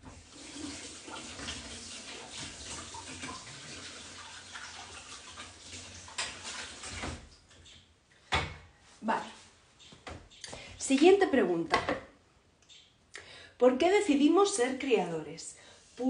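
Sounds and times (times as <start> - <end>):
tap running water: 0.0 - 7.7.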